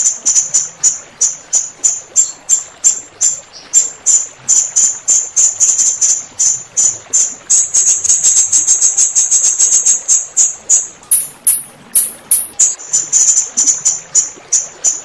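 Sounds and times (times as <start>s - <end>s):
parrot calling shrill notes: 11.1s - 12.8s.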